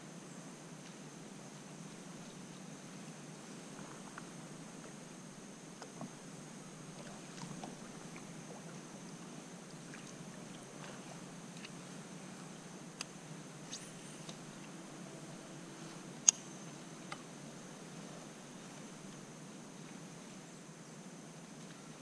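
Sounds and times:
steady hiss: 0:00.0 - 0:22.0
paddle splashes and drips: 0:06.9 - 0:08.8, 0:09.7 - 0:11.8.

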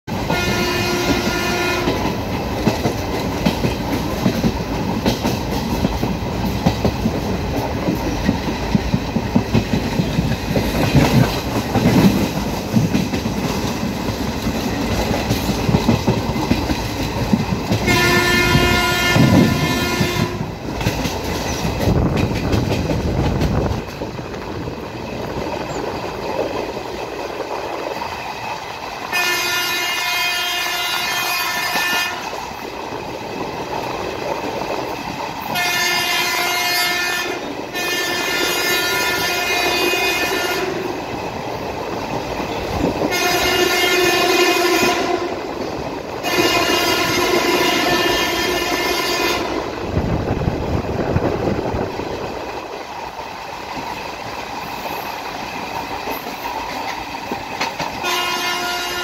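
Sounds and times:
train wheel and track rumble: 0:00.0 - 0:59.0
train horn: 0:00.1 - 0:02.2, 0:17.8 - 0:20.6, 0:29.1 - 0:32.4, 0:35.5 - 0:41.0, 0:43.0 - 0:45.6, 0:46.2 - 0:49.8, 0:58.0 - 0:59.0.

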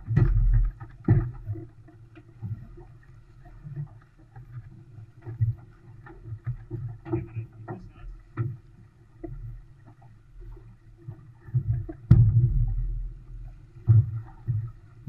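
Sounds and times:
water rumbling along a hull: 0:00.0 - 0:15.0
hull thumps and knocks: 0:11.6 - 0:13.1.

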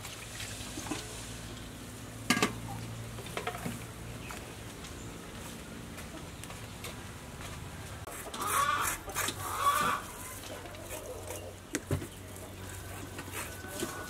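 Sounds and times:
chicken clucking: 0:08.1 - 0:14.0.

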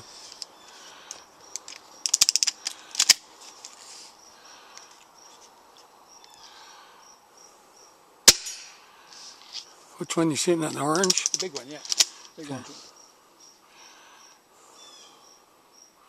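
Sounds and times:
insects chirping: 0:00.0 - 0:16.0
air rifle mechanical clicks: 0:01.1 - 0:03.8, 0:10.9 - 0:12.4.

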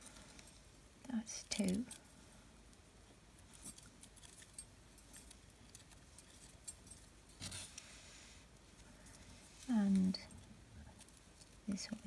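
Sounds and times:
cord handling sounds: 0:03.4 - 0:07.9.

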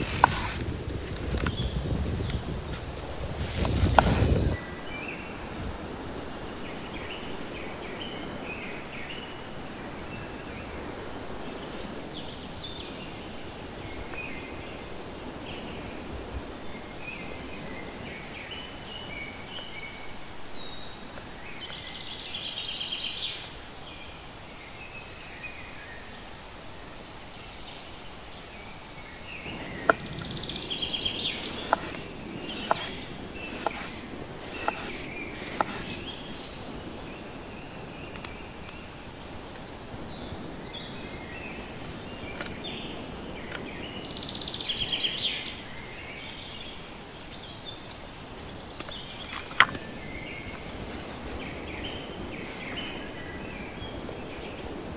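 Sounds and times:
knife slicing on wooden board: 0:00.0 - 0:00.6, 0:03.4 - 0:04.4, 0:31.4 - 0:36.0
small birds chirping: 0:27.2 - 0:54.9.

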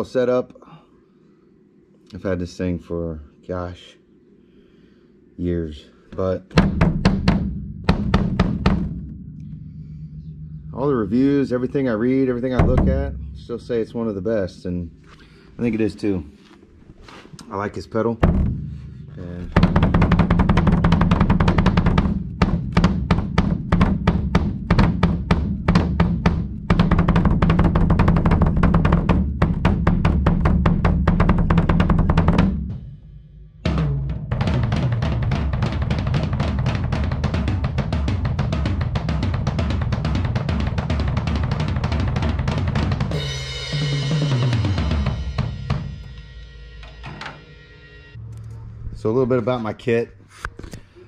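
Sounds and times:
tom fill: 0:04.5 - 0:48.2
fast kick drum strokes: 0:06.5 - 0:15.0, 0:18.0 - 0:47.6
drum kit with cymbals: 0:06.5 - 0:16.2, 0:17.5 - 0:48.2
cymbal crash: 0:08.8 - 0:12.0, 0:43.1 - 0:48.2.

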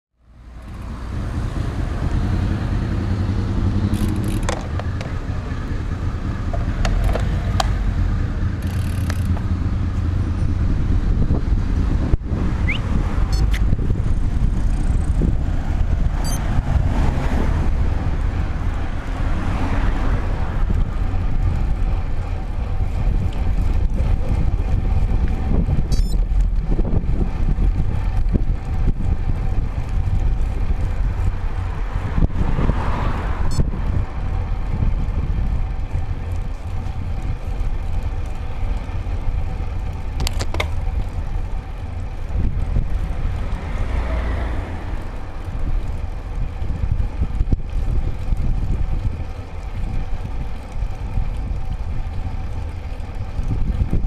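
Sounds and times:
road noise: 0:00.1 - 0:54.0
wind rush: 0:01.0 - 0:37.4
sharp clicks: 0:03.9 - 0:05.1, 0:08.6 - 0:09.5, 0:12.7 - 0:13.7.

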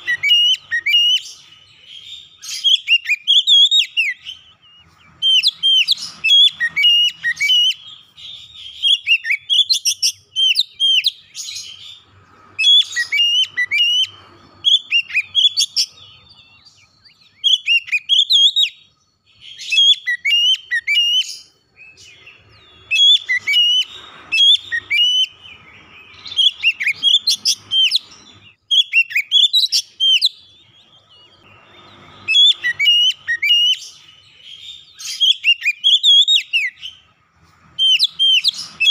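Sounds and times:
bird singing whistled notes: 0:00.0 - 0:38.9.

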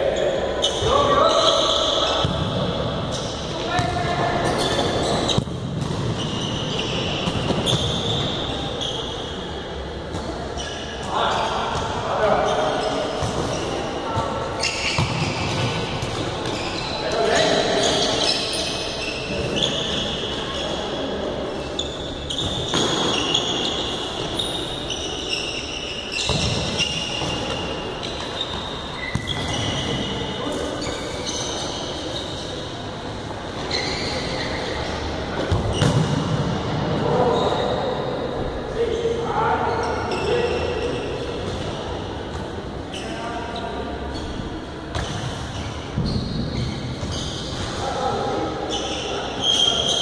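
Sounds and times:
shoes squeaking on court floor: 0:00.1 - 0:36.3, 0:37.1 - 0:50.0
ball kicked and bouncing on court: 0:03.8 - 0:06.2, 0:14.9 - 0:16.6, 0:35.4 - 0:36.5.

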